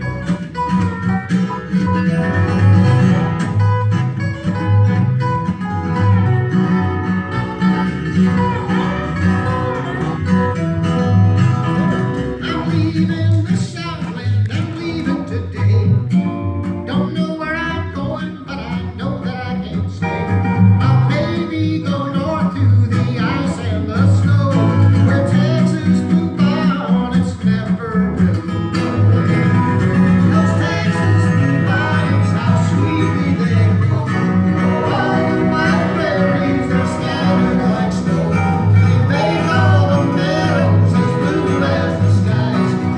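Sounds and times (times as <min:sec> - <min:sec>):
acoustic guitar backing: 0:00.0 - 0:42.9
slide resonator guitar: 0:00.0 - 0:42.9
person singing: 0:20.8 - 0:28.0, 0:30.2 - 0:42.9.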